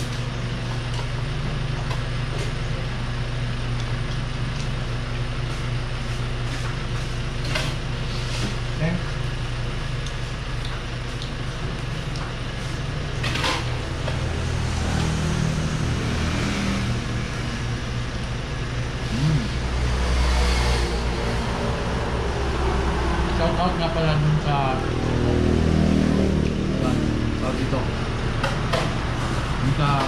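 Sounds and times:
vehicle engine running: 0.0s - 30.0s
road noise rushing: 13.2s - 30.0s.

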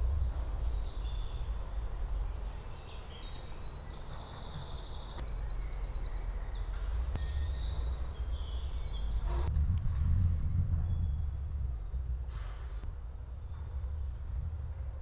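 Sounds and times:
steady low rumble: 0.0s - 4.2s, 5.2s - 15.0s
songbirds singing: 0.0s - 9.5s.

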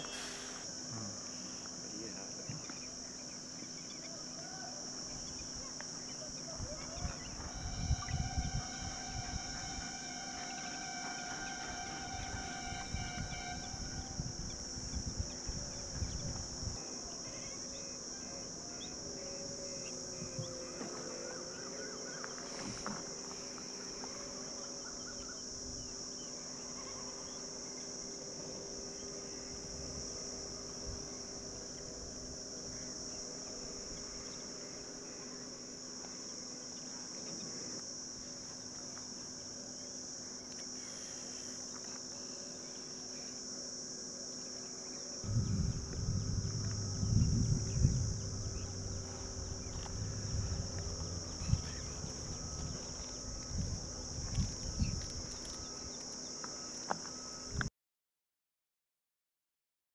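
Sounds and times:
faint low hum: 0.0s - 43.3s, 44.2s - 57.7s
insect chorus: 0.0s - 57.7s
low rumble: 7.0s - 16.7s, 45.2s - 55.2s.

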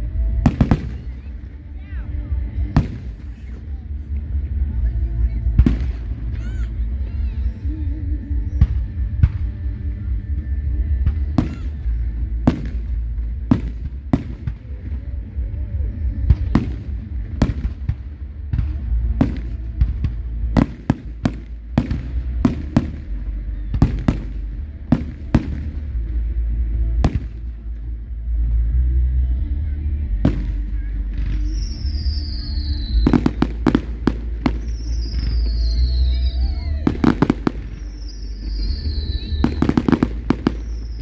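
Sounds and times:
low rumble: 0.0s - 41.0s
fireworks exploding: 0.3s - 1.8s, 2.6s - 4.4s, 5.4s - 7.5s, 10.9s - 26.2s, 27.0s - 27.6s, 30.2s - 41.0s.

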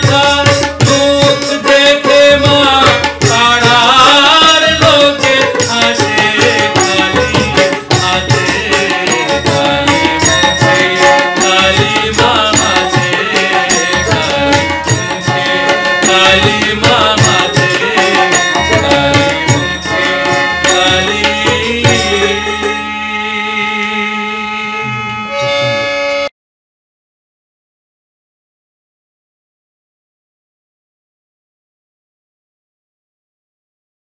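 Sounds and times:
hand drum rhythm: 0.0s - 22.9s
man singing devotional song: 0.0s - 26.0s
melodic accompaniment: 3.0s - 26.3s.

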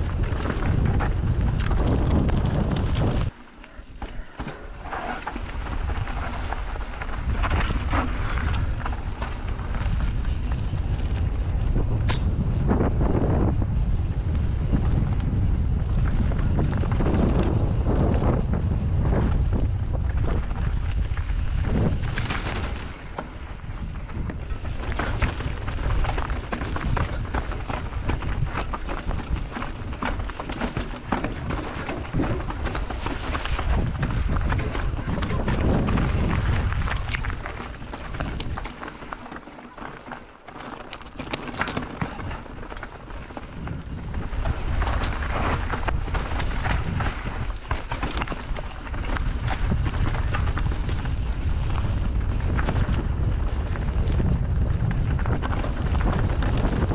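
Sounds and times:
bike knocking and rattling: 0.0s - 56.9s
wind rumble on microphone: 0.0s - 56.9s
tyres skittering over stones: 19.9s - 56.9s.

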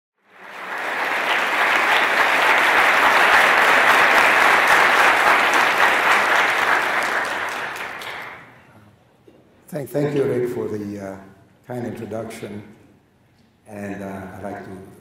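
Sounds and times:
audience applauding: 0.2s - 8.6s.

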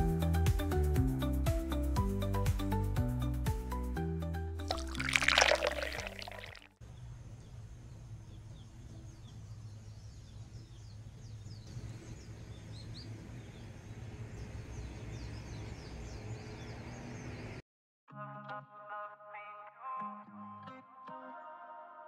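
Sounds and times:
small birds chirping: 6.1s - 17.6s.

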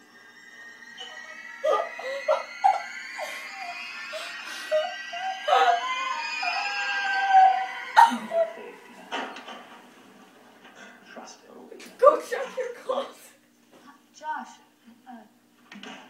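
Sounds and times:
girls screaming: 0.0s - 9.0s.

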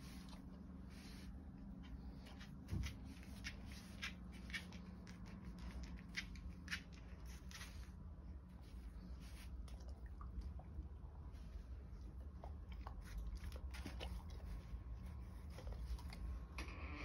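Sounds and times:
steady low hum: 0.0s - 17.0s
dog claws clicking on floor: 2.4s - 7.8s.

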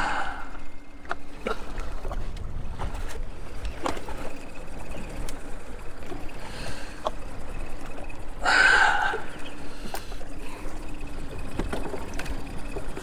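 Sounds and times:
wind rumble on microphone: 0.0s - 6.3s.

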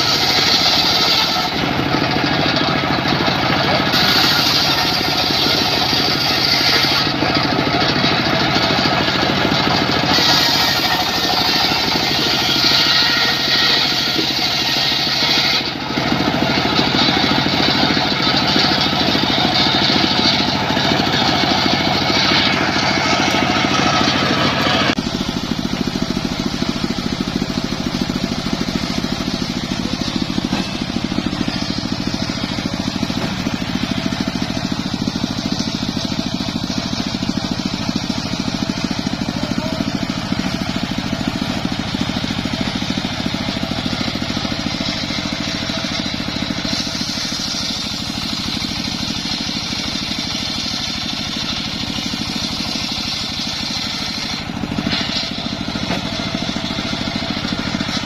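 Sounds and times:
sawmill engine running: 0.0s - 58.0s.

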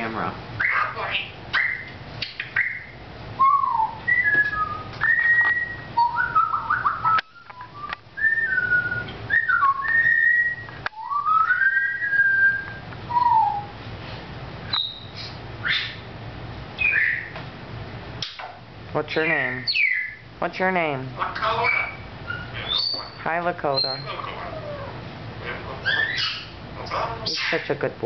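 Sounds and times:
high parrot chirps: 0.6s - 7.6s, 14.7s - 16.1s, 16.8s - 17.4s, 18.2s - 20.3s, 21.2s - 27.8s.

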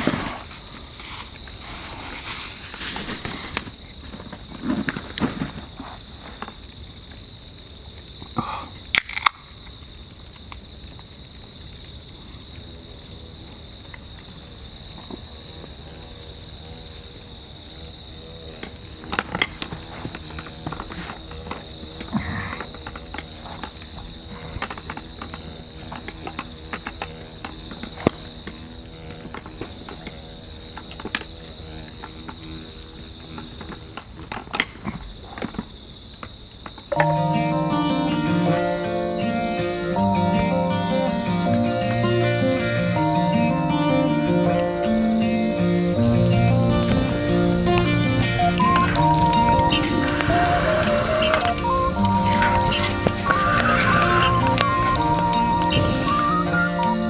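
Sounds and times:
night insects trilling: 0.0s - 57.0s
campfire crackling and popping: 46.0s - 57.0s.

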